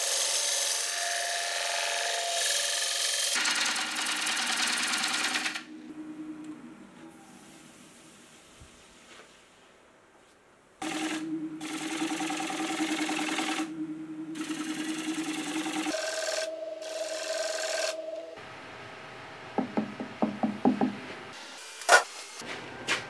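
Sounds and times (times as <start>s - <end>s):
sharp knocks: 19.6s - 21.0s.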